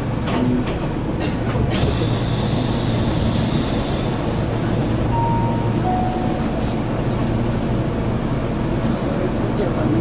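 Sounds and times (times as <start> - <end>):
electric train humming: 2.0 - 9.4.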